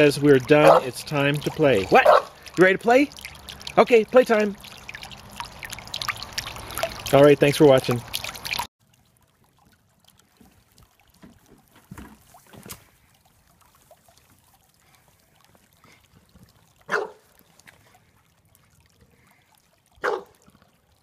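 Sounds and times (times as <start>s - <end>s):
fountain water trickling: 0.0s - 21.0s
dog barking: 0.6s - 0.9s, 1.9s - 2.4s, 16.9s - 17.2s, 20.0s - 20.4s.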